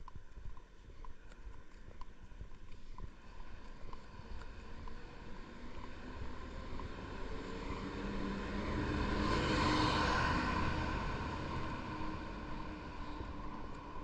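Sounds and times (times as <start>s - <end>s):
bus driving past: 4.0s - 14.0s.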